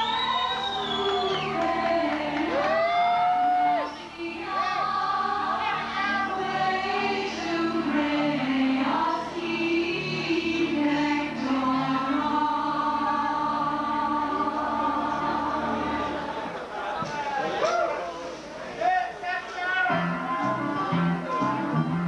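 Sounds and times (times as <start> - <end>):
choir singing slow hymn: 0.0 - 17.4.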